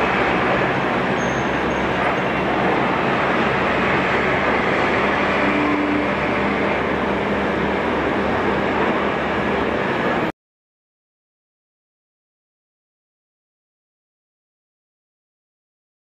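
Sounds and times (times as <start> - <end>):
heavy city traffic: 0.0 - 10.3.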